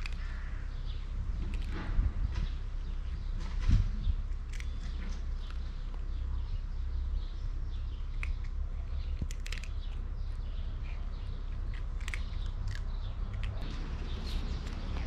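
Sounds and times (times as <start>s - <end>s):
cats crunching dry kibble: 0.0s - 2.0s, 4.2s - 6.3s, 8.0s - 15.0s
small birds chirping: 0.0s - 15.0s
steady low rumble: 0.0s - 15.0s.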